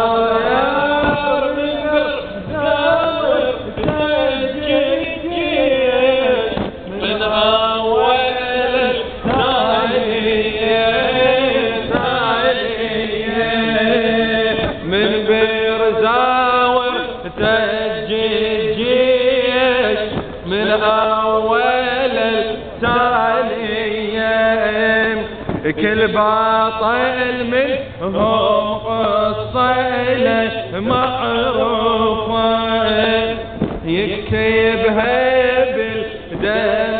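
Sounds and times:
man chanting into a microphone: 0.0 - 36.9.

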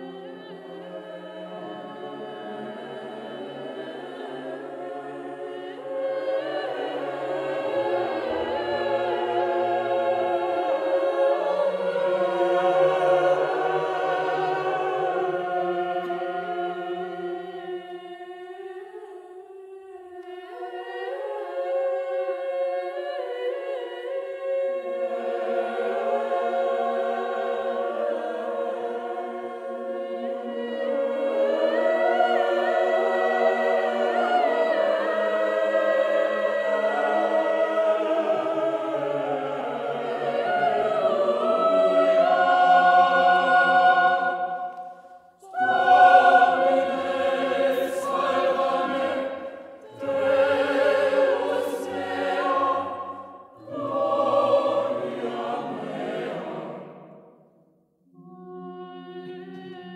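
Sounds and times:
choir singing polyphony: 0.0 - 59.9.

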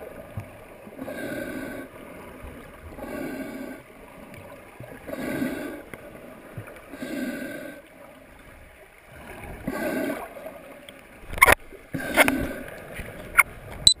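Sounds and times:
water gurgling: 0.0 - 14.0
breathing through a snorkel: 1.0 - 2.0, 3.0 - 3.9, 5.1 - 6.0, 6.9 - 7.9, 9.6 - 10.4, 12.0 - 12.8.

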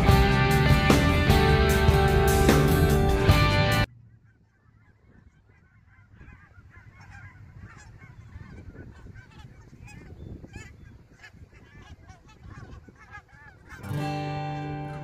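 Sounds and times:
guitar music: 0.0 - 3.9, 13.8 - 15.0
geese honking: 0.0 - 15.0.

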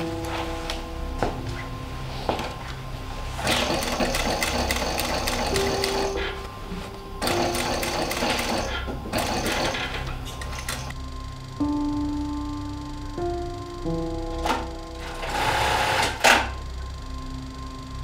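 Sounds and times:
industrial sewing machine stitching: 3.4 - 6.2, 7.3 - 10.0, 15.0 - 16.5.

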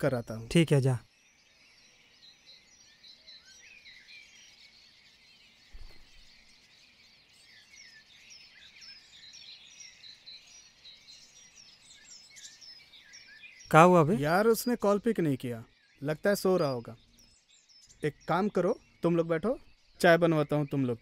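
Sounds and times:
small birds chirping: 0.0 - 21.0
low thump: 5.7 - 6.3.

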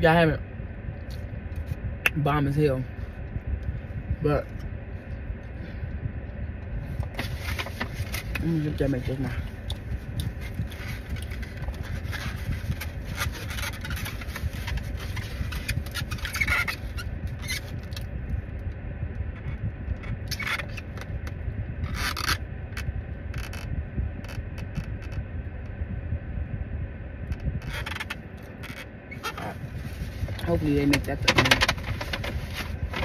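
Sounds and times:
low rumble: 0.0 - 33.0
plastic containers scraping: 29.2 - 33.0.

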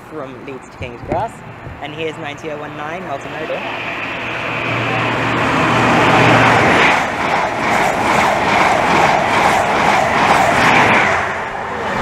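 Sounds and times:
low hum: 0.0 - 12.0
train rushing past: 0.2 - 12.0
wheels clattering over rails: 4.4 - 12.0.

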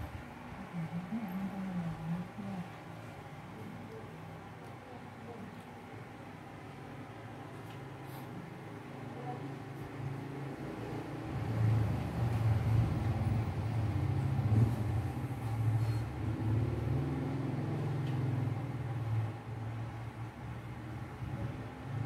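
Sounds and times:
engine rumbling: 10.0 - 22.0.

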